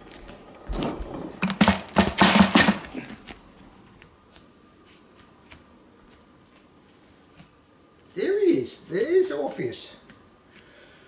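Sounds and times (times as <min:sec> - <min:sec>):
knocks and scrapes on wooden floor: 0:00.6 - 0:03.1.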